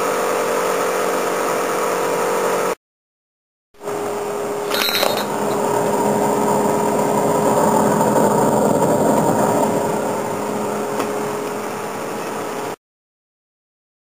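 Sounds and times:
gas flare roaring: 0:03.8 - 0:12.8
steady hum: 0:03.8 - 0:12.8.

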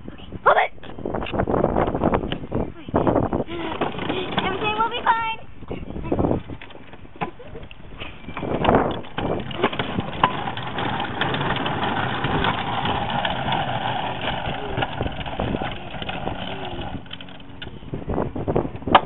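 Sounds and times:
wagon wheels rattling on concrete: 0:03.1 - 0:05.4, 0:06.2 - 0:18.2.

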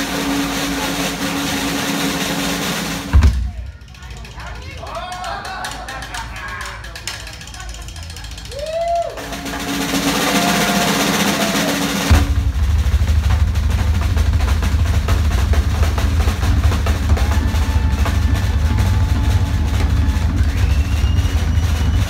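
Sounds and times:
drum roll with cymbal: 0:00.0 - 0:04.4, 0:07.4 - 0:22.0
rock band playing: 0:09.3 - 0:12.6, 0:14.2 - 0:22.0.

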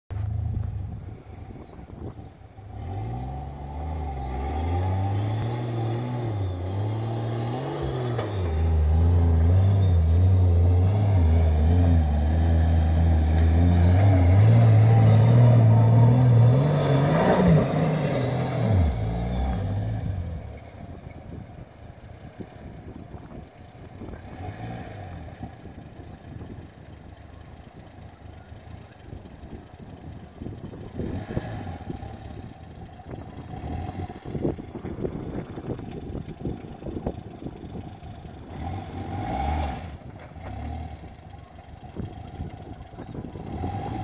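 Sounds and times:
truck engine revving hard: 0:02.8 - 0:20.4, 0:31.0 - 0:32.4, 0:38.5 - 0:41.1, 0:43.3 - 0:44.0.

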